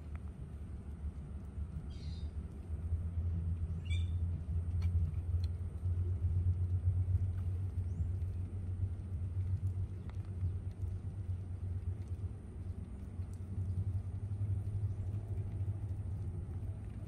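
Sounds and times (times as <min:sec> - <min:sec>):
low rumble: 0:00.0 - 0:17.0
faint bird calls: 0:01.9 - 0:02.4, 0:03.7 - 0:04.2.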